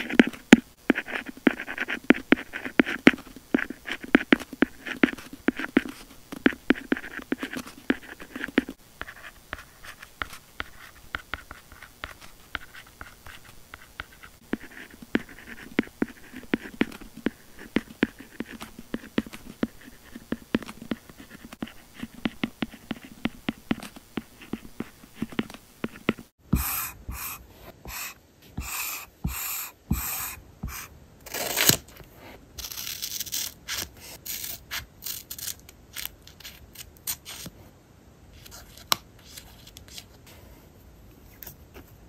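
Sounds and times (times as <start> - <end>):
pen scratching on paper: 0.0 - 30.9.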